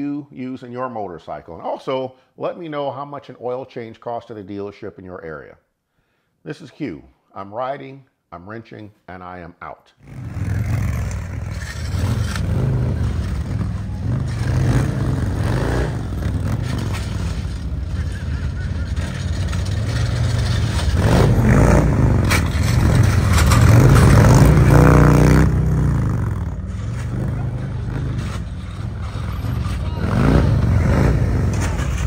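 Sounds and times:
motorcycle engine revving: 10.0s - 32.0s.

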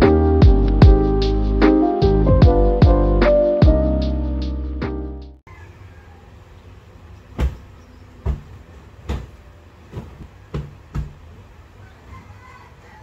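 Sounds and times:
low background hum: 5.5s - 13.0s.

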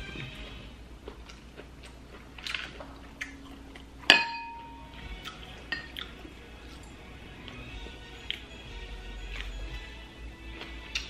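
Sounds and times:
tableware clinking: 4.1s - 5.0s, 5.7s - 5.9s.

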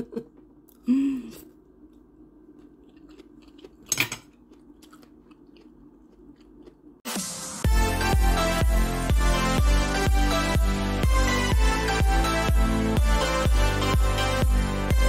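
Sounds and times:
person chewing crunchy food: 1.4s - 7.1s.

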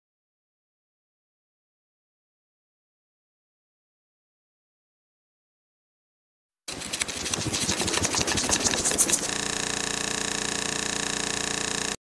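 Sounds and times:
electronic glitch crackling: 6.7s - 12.0s
fluttering electronic buzz: 6.7s - 12.0s.

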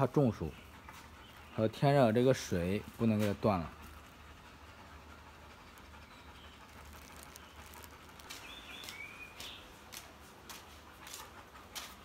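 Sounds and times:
bird chirps: 6.0s - 9.8s
sandal footsteps on brick: 8.1s - 11.2s.

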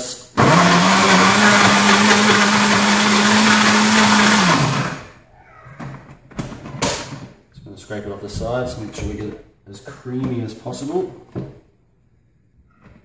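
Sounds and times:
blender motor running: 0.4s - 5.2s.

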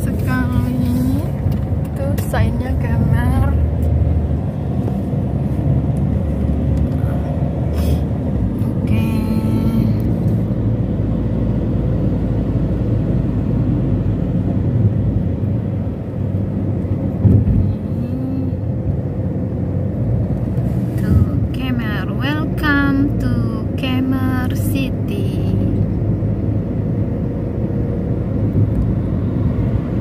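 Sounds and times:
car engine and tyre rumble: 0.0s - 30.0s.

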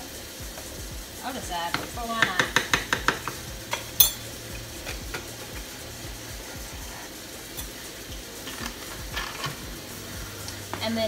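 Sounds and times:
steady hiss: 0.0s - 11.0s
low hum: 2.8s - 11.0s.

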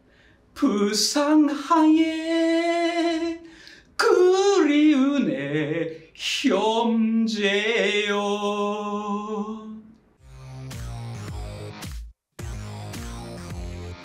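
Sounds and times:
singer breathing: 0.0s - 0.6s, 3.4s - 4.0s
man singing unaccompanied: 0.6s - 10.0s.

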